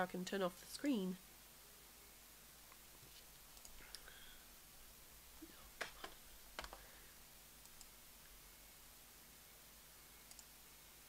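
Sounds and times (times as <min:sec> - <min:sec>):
computer mouse clicking: 0:03.5 - 0:04.1, 0:05.8 - 0:06.8, 0:07.6 - 0:07.9, 0:10.3 - 0:10.5.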